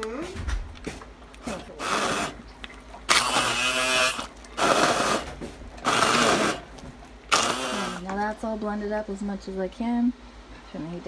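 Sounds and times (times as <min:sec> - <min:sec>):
immersion blender pureeing: 0:01.4 - 0:08.2.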